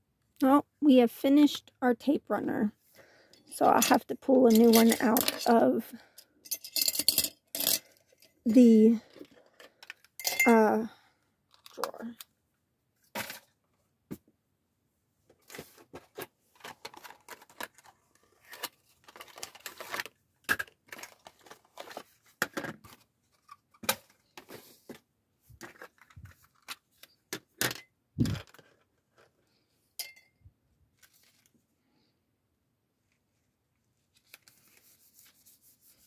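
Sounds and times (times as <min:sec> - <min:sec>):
small items clattering in drawer: 0:03.7 - 0:05.6, 0:15.4 - 0:29.4
crinkly rustling: 0:15.4 - 0:23.5, 0:30.9 - 0:31.7.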